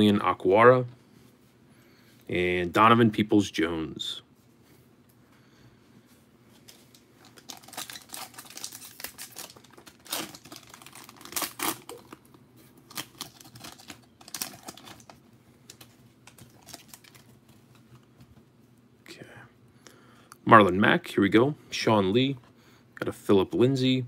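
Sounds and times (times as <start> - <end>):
foil wrapper tearing and crinkling: 6.7 - 17.3.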